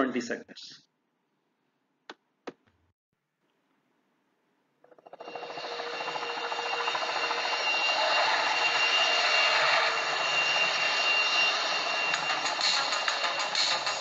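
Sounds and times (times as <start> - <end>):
thin steady high tone: 5.1 - 14.0
dense busy music: 9.7 - 14.0.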